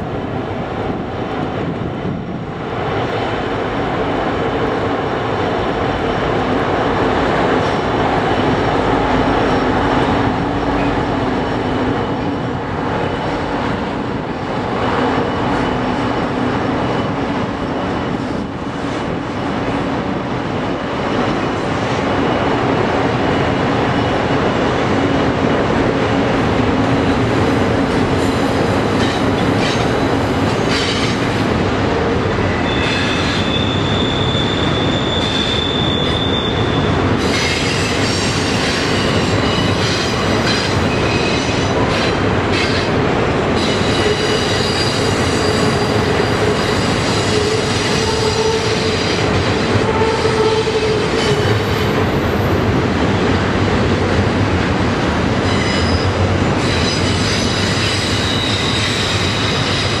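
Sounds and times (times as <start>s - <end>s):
freight train rumbling over bridge: 0.0s - 60.0s
high-pitched wheel squeals: 32.5s - 38.1s, 55.5s - 60.0s.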